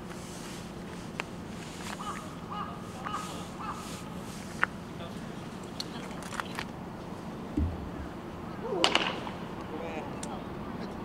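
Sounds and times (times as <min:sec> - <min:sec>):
bird calling: 0:01.8 - 0:06.6, 0:07.5 - 0:09.0.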